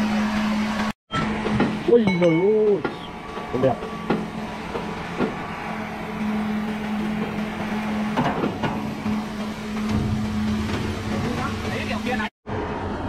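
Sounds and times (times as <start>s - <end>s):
sawmill machinery humming: 0.0s - 13.0s
sharp knocks and clanks: 1.4s - 5.5s, 6.6s - 11.5s.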